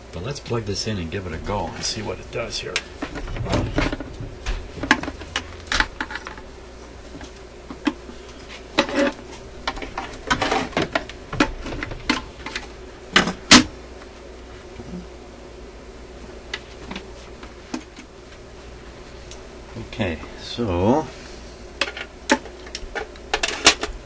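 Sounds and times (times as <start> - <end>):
record player clicks and rattles: 2.8 - 6.4, 8.8 - 13.7, 21.8 - 24.0.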